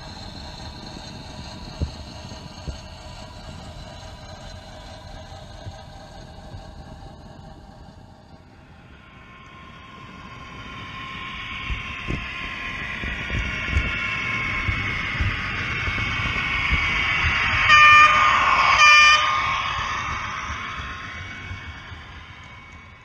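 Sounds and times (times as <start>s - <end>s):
train running noise: 0.0s - 23.0s
train horn blasts: 17.6s - 20.0s.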